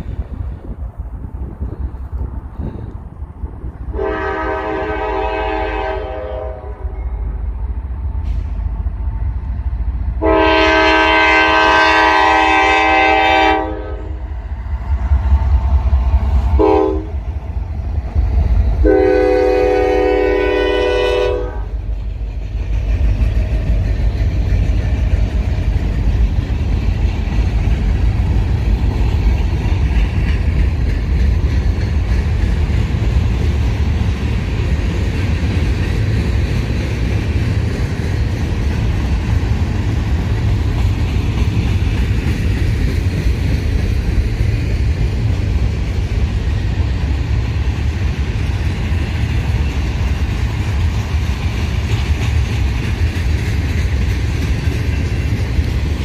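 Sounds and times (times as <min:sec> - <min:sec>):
freight cars rumbling and clattering: 0:00.0 - 0:04.0, 0:21.6 - 0:56.0
locomotive air horn: 0:03.9 - 0:07.0, 0:10.2 - 0:14.3, 0:16.6 - 0:17.2, 0:18.8 - 0:21.8.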